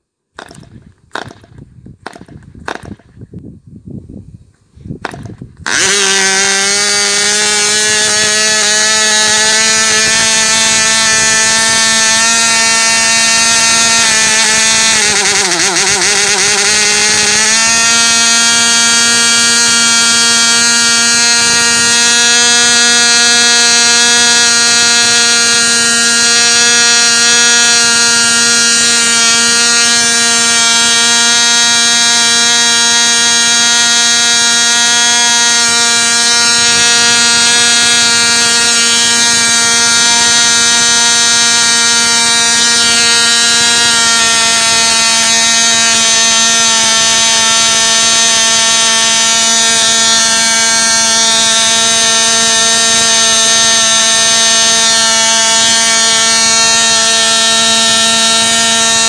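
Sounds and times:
model engine high-pitched buzz: 0.0 - 3.2, 5.0 - 59.0.

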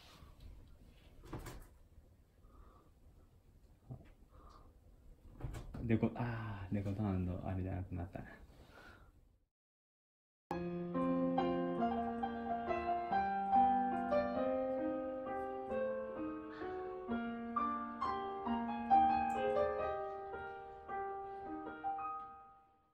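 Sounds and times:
gentle piano music: 10.5 - 22.9.

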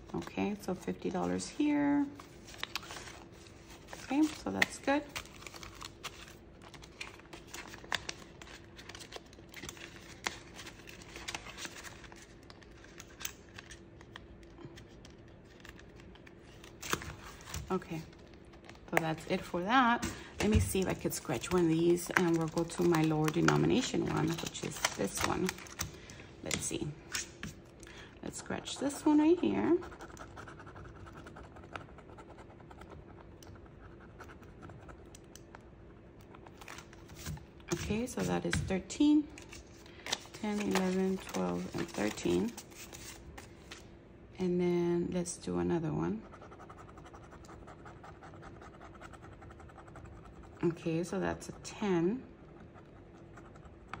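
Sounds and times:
faint steady hum: 0.0 - 54.0
paper banknotes rustling: 2.2 - 14.2, 20.2 - 26.1, 39.4 - 43.8
plastic binder pocket crinkling: 2.4 - 19.1, 20.8 - 26.6, 39.4 - 43.9.

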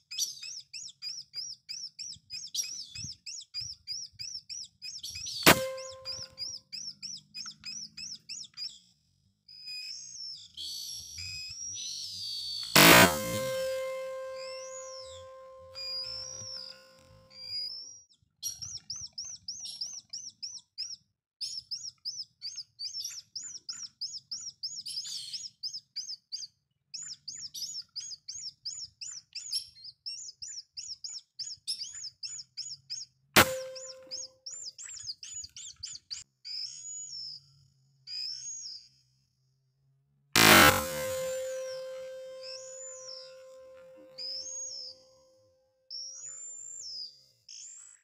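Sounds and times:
bird calling rapid high notes: 5.2 - 6.6, 12.5 - 17.5, 33.4 - 34.6, 40.4 - 45.1
air rifle shot: 5.4 - 6.3, 12.8 - 14.8, 33.4 - 34.2, 40.4 - 42.0.

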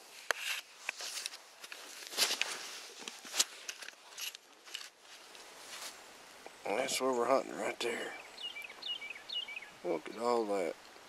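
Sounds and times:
fabric rustling: 0.0 - 6.1.

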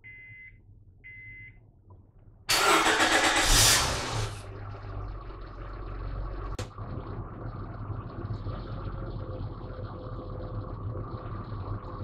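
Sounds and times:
car engine starting and idling: 2.4 - 12.0.

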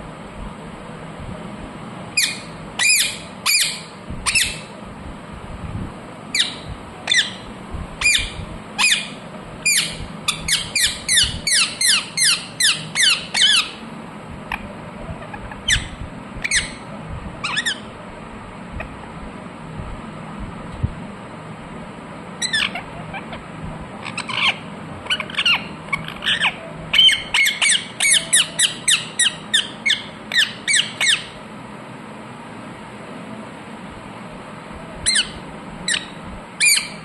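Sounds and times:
parakeet shrill calls: 2.2 - 4.7, 6.3 - 13.8, 15.2 - 17.9, 22.4 - 23.4, 24.0 - 31.4, 35.0 - 37.0.

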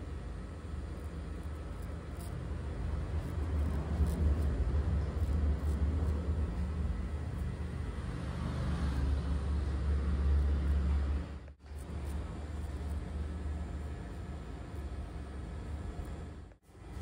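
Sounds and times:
razor scraping stubble: 1.0 - 2.5, 3.1 - 6.7.

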